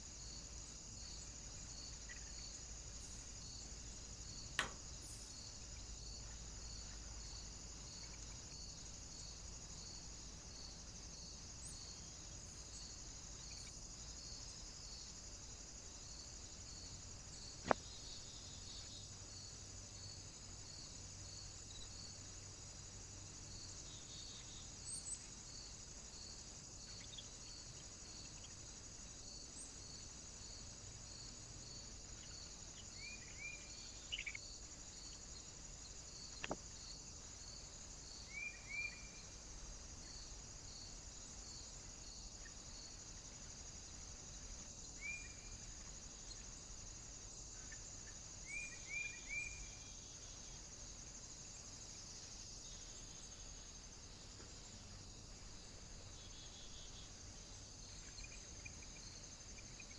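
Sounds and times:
insects chirping: 0:00.0 - 0:59.9
steady high hiss: 0:00.0 - 0:59.9
small birds calling: 0:32.1 - 0:34.4.

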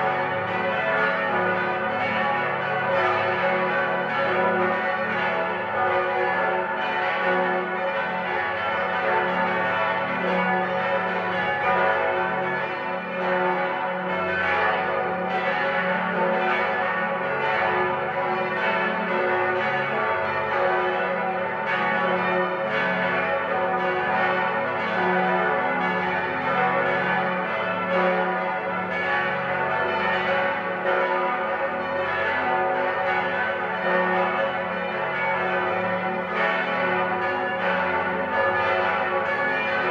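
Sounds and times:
church bells pealing: 0:00.0 - 0:39.9.

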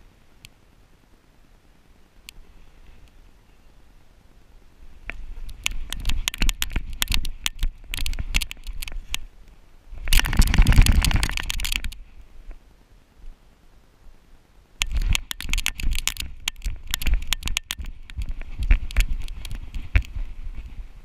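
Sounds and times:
paws crackling in dry leaves: 0:14.8 - 0:21.0.

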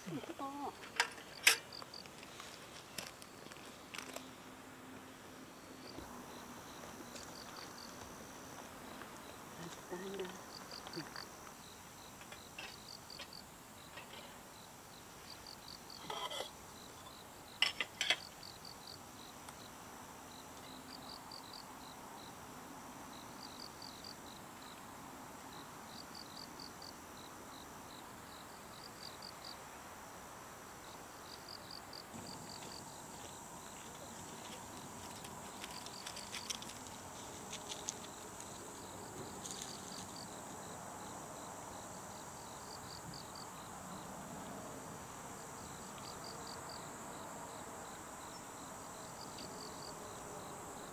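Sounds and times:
crickets chirping: 0:00.0 - 0:50.9
high insect tone: 0:00.0 - 0:50.9.

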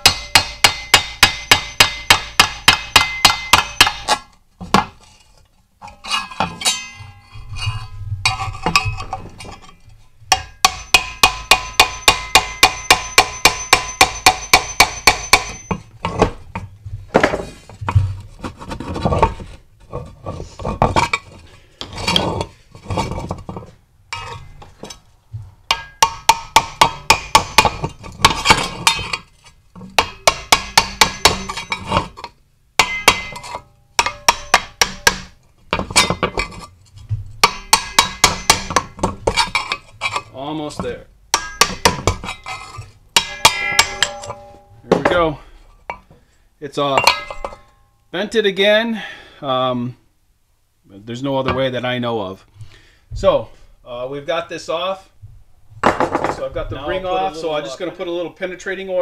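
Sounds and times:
metal disc ringing: 0:00.0 - 0:04.2, 0:05.8 - 0:16.0, 0:25.7 - 0:31.9, 0:32.8 - 0:35.1, 0:41.3 - 0:46.1, 0:46.9 - 0:48.0
hammer tapping steel tool: 0:00.0 - 0:04.9, 0:05.9 - 0:07.5, 0:08.3 - 0:16.2, 0:25.7 - 0:32.0, 0:32.8 - 0:36.3, 0:37.4 - 0:40.2, 0:41.3 - 0:45.2, 0:46.9 - 0:47.9.

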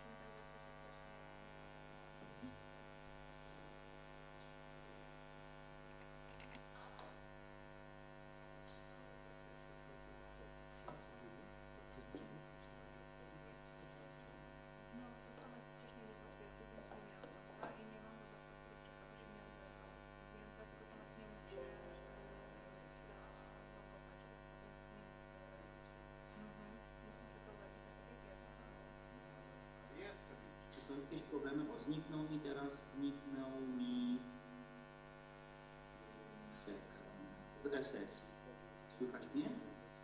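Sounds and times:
electrical mains hum: 0:00.0 - 0:40.0.

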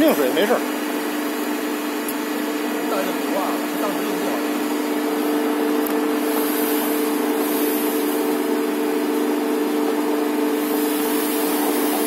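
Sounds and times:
mill motor hum: 0:00.0 - 0:12.0.

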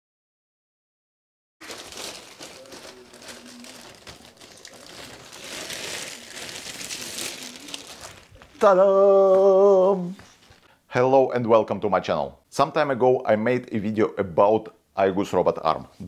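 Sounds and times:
plastic bag crinkling: 0:01.6 - 0:08.7
man calling out: 0:08.6 - 0:10.2.

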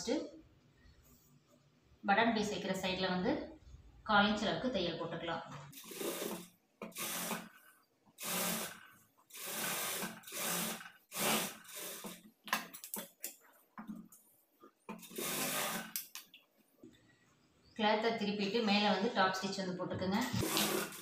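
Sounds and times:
sewing machine stitching: 0:05.7 - 0:12.2, 0:15.0 - 0:16.0, 0:20.3 - 0:21.0.

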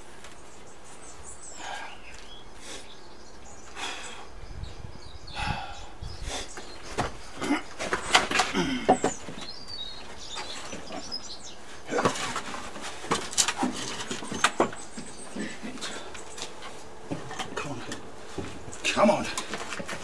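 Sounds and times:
wooden knocks and clatters: 0:06.9 - 0:09.6, 0:11.9 - 0:20.0.

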